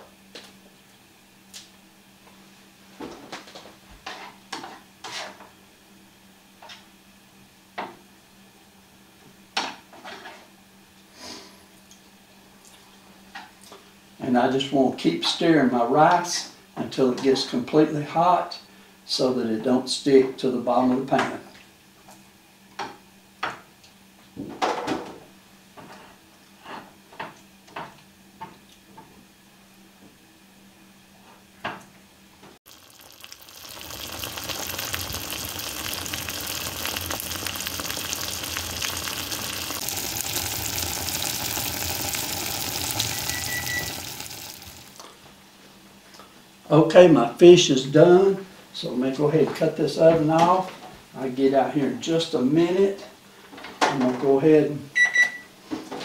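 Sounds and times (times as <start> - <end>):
utensil scraping a pan: 5.0 - 5.4
low steady hum: 32.7 - 45.2.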